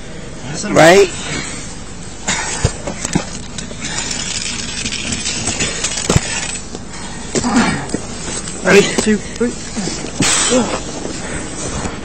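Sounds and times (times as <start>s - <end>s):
gear clinking: 2.9s - 7.0s.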